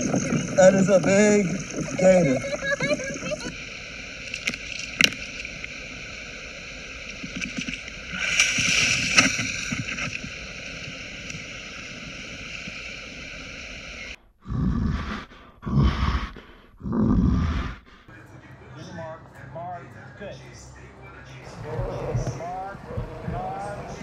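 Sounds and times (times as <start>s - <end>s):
water splashing: 0.0s - 14.2s
steady hiss: 0.0s - 14.4s.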